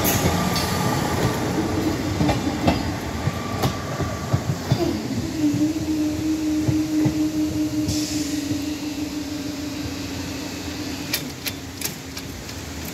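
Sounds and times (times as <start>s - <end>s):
low knocks from train: 0.0s - 5.0s.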